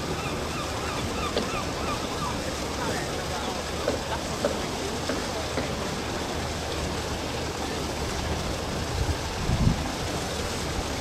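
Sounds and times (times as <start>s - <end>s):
wash of water: 0.0s - 11.0s
wind noise on microphone: 8.6s - 11.0s.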